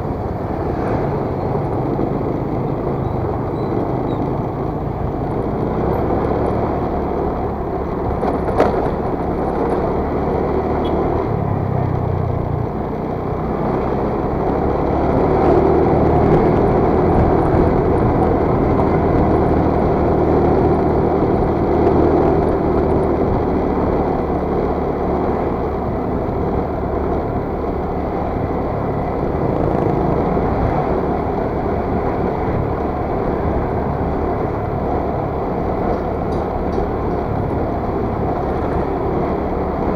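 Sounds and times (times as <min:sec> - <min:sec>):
wind noise on microphone: 0:25.5 - 0:39.9.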